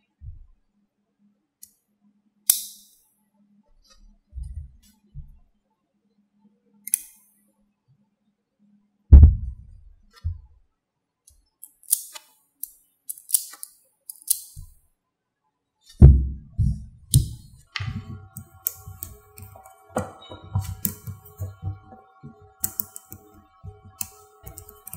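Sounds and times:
low handling thumps: 4.4 - 5.4, 9.1 - 10.5, 16.0 - 18.4, 19.9 - 22.7
magnetic balls clicking together: 17.1 - 24.9.

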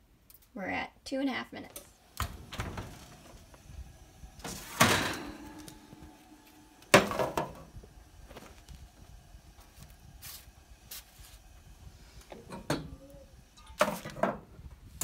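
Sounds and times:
metal oven rack scraping: 4.4 - 6.1
baking sheet clank and rattle: 4.5 - 5.6.

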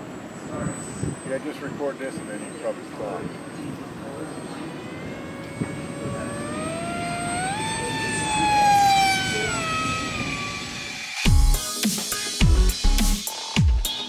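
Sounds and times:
model plane motor whining: 3.8 - 11.3.

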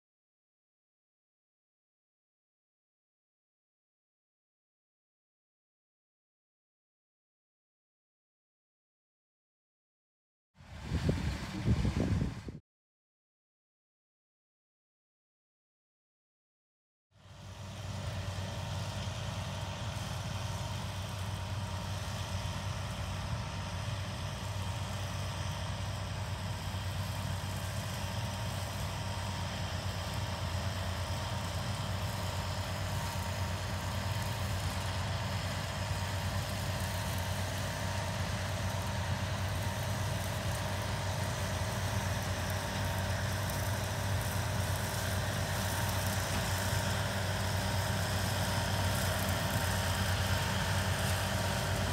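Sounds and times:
flail mulcher and tractor engine: 10.6 - 12.6, 17.2 - 51.9.

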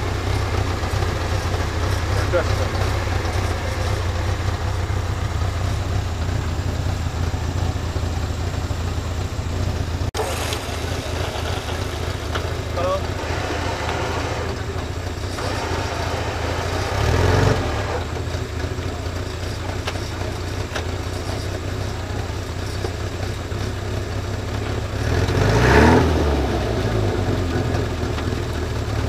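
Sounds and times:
car engine idling and revving: 0.0 - 29.0.

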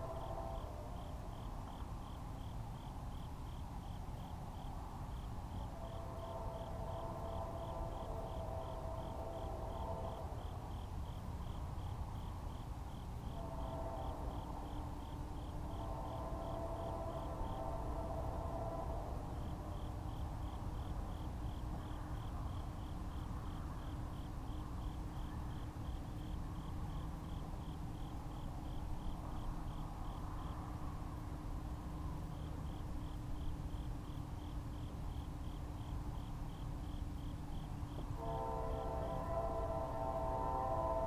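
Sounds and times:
distant train horn: 0.0 - 1.3, 5.6 - 11.0, 13.2 - 20.4, 37.9 - 41.0
insect chirping: 0.0 - 31.0, 32.2 - 40.2.

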